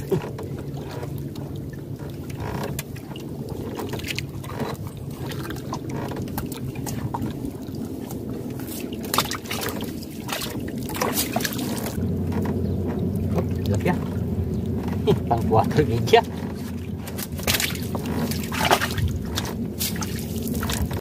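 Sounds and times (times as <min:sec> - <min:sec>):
low hum: 0:00.0 - 0:21.0
net hauled over boat dripping: 0:00.0 - 0:21.0
water lapping at hull: 0:00.0 - 0:21.0
fish splashing into water: 0:08.6 - 0:12.0, 0:17.2 - 0:21.0.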